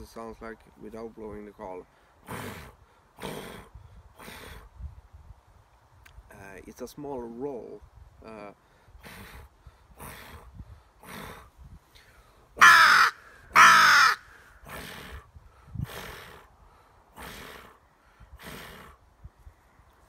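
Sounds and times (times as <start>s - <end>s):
person imitating crow caws: 12.6s - 14.3s.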